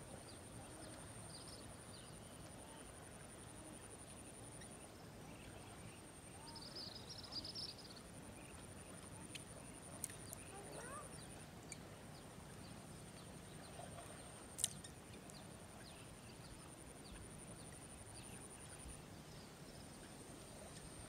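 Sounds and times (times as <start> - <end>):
faint bird chirps: 0.1 - 21.0.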